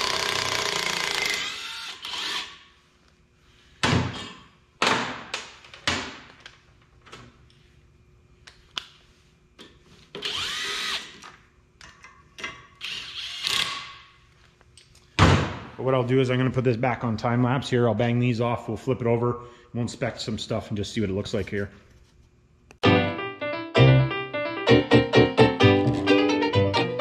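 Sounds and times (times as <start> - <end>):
cordless drill running: 0.0 - 2.6, 10.2 - 11.2.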